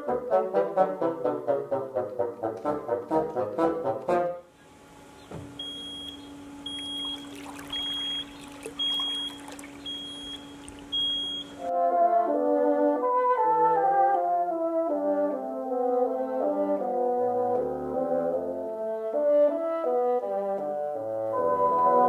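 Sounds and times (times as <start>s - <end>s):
bassoons playing: 0.0s - 4.6s, 11.5s - 22.0s
motor hum: 4.5s - 11.7s
high warning beeps: 5.6s - 11.7s
stirring water: 6.7s - 11.6s.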